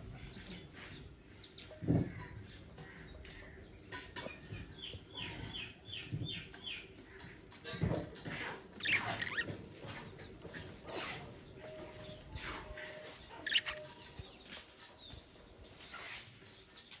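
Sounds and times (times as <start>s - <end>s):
budgerigars chirping: 8.8s - 9.6s, 12.4s - 14.2s.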